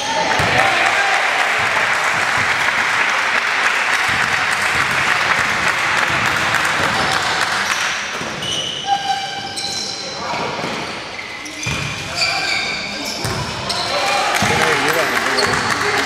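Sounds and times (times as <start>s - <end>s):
spectators clapping: 0.5s - 8.0s, 14.2s - 16.0s
shoes squeaking on court: 8.2s - 15.9s.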